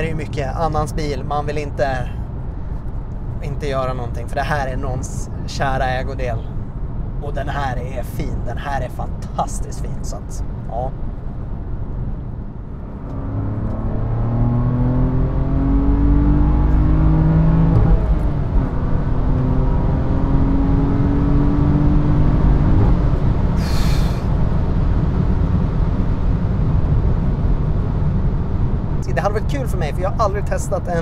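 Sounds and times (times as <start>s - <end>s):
car engine accelerating: 12.3s - 29.3s.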